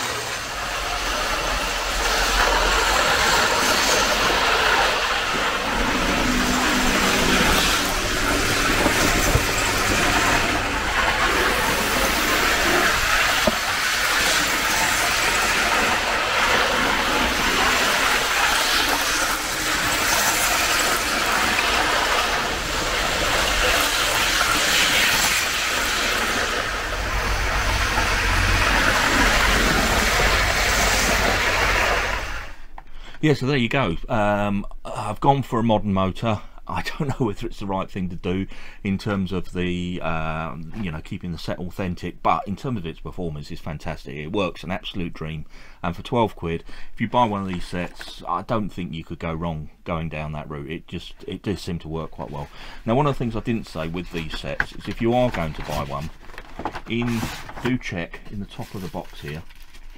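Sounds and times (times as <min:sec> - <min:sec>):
model train running on track: 0:00.0 - 0:32.6.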